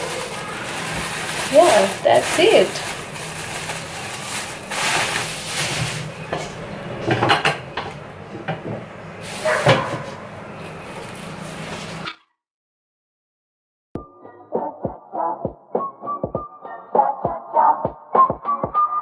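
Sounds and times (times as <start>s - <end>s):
plastic bag rustling: 0.0s - 6.7s
kitchen items knocking and clattering: 0.0s - 10.2s.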